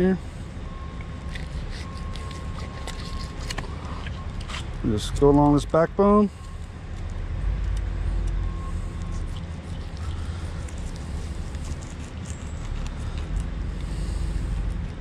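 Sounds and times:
knife ticking and scraping on fish: 1.2 - 4.6.

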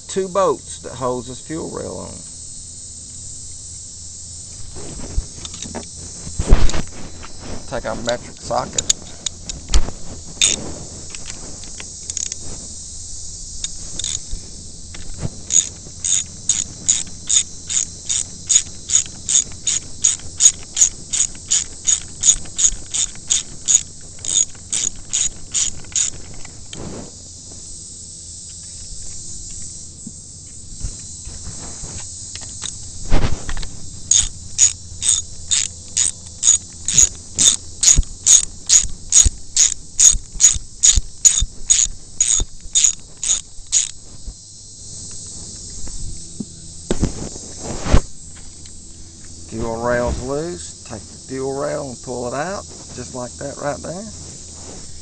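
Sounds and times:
socket ratchet clicking: 10.4 - 10.6, 11.2 - 12.4, 13.6 - 14.3, 14.9 - 26.5, 33.5 - 44.0.

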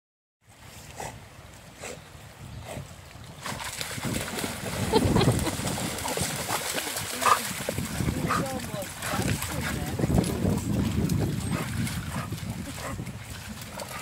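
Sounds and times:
dogs splashing through water: 3.2 - 14.0
river flowing: 4.4 - 10.0.

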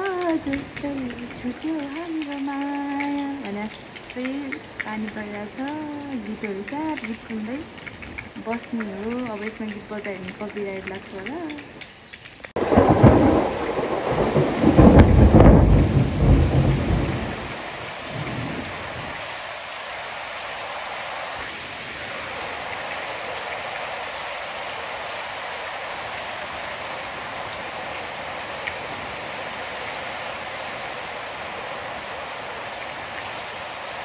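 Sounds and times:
rain hissing: 0.0 - 34.0
wind in trees: 0.0 - 34.0
rolling thunder: 12.6 - 19.2.

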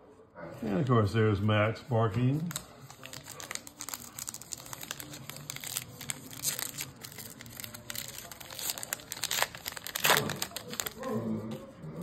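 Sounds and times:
cards being handled: 2.0 - 11.6
wrappers crinkling: 2.3 - 11.1.

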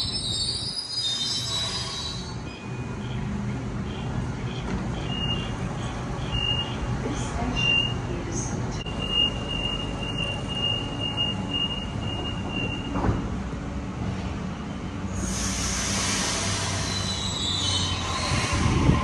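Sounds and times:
electric train rumble: 0.0 - 19.0
train hiss and whine: 15.0 - 19.0.

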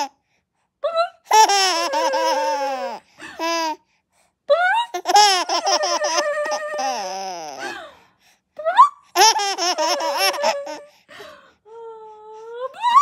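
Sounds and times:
baby laughing: 1.3 - 3.8, 4.8 - 7.8, 8.9 - 11.0.

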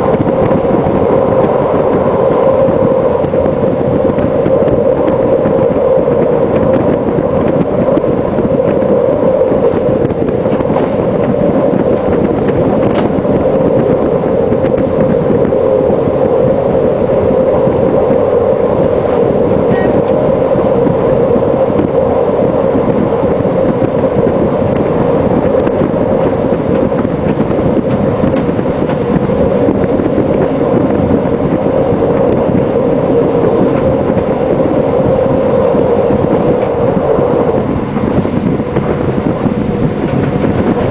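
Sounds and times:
train cab drone: 0.0 - 40.9.

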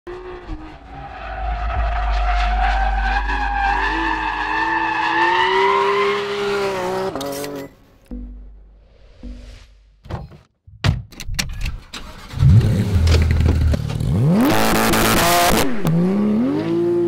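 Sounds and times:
car engine revving hard: 12.2 - 17.0.

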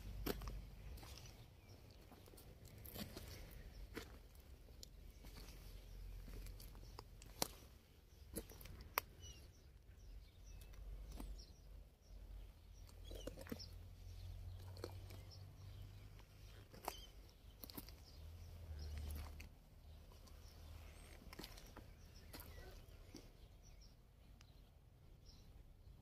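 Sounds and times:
faint bird chirps: 20.2 - 25.5.

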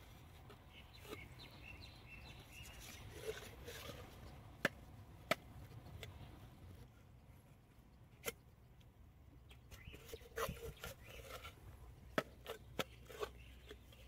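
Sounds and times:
knife scraping mussel shell: 2.5 - 4.3, 9.8 - 11.6.

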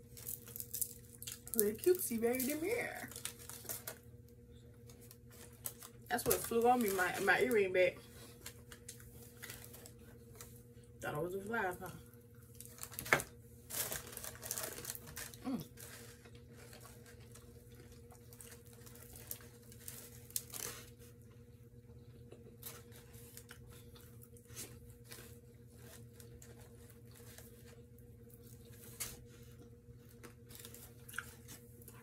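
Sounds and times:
steady low hum: 0.0 - 32.0
paper crinkling: 0.1 - 4.1, 4.8 - 10.6, 12.5 - 21.1, 28.4 - 32.0.

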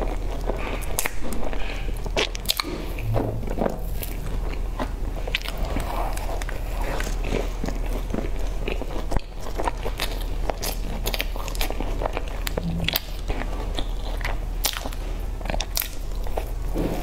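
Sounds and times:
wet chewing: 3.9 - 16.6.

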